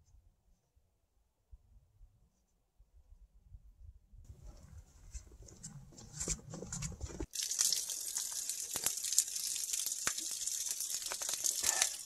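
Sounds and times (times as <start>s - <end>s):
running splashing water: 7.3s - 12.0s.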